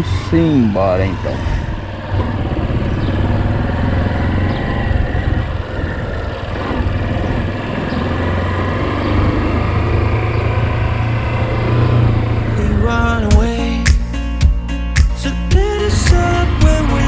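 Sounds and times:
motorcycle engine at low revs: 0.0 - 13.3.

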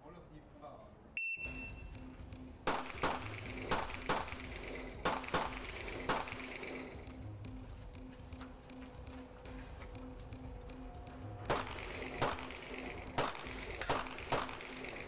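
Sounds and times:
shot timer beep: 1.2 - 2.1
pistol shots: 2.6 - 6.6, 11.5 - 15.0.

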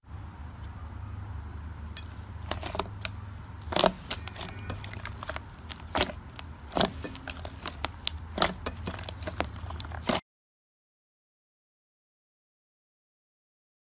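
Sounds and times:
slime popping and squelching: 2.0 - 10.2.

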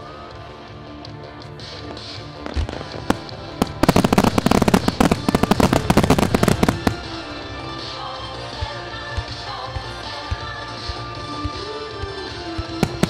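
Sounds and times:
music: 0.0 - 13.0
fireworks crackling: 2.2 - 7.9
fireworks bangs: 2.5 - 7.7.

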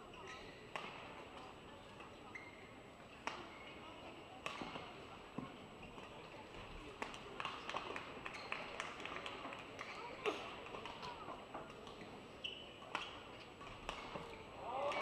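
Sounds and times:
low arena background: 6.8 - 15.0
rackets hitting shuttlecock: 12.8 - 15.0.

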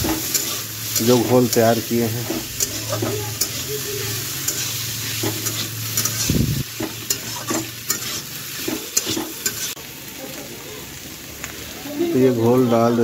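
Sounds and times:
metal spatula scraping a pan: 0.0 - 9.8
vegetables sizzling in a pan: 0.0 - 13.0.

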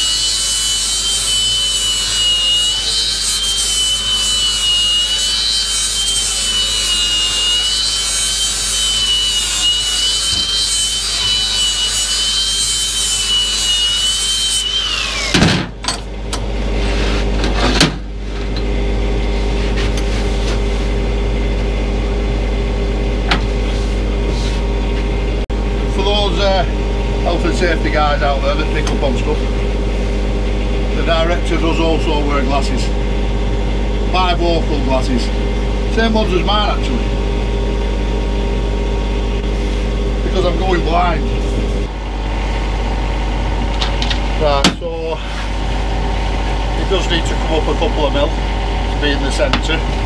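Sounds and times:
bench grinder whine: 0.0 - 50.0
steady low hum: 15.0 - 50.0.

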